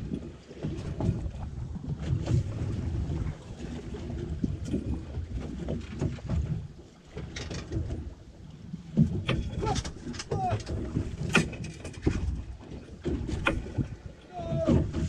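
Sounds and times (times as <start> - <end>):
wind and water rumble: 0.0 - 15.0
light knocks on boat: 8.9 - 14.0.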